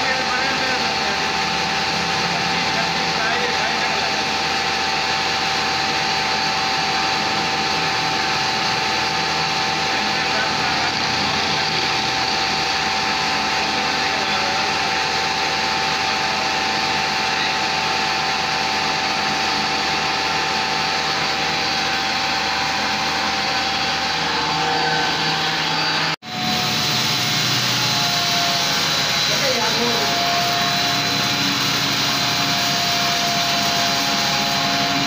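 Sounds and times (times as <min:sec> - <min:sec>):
electric motor humming: 0:00.0 - 0:35.0
high motor whine: 0:00.0 - 0:35.0.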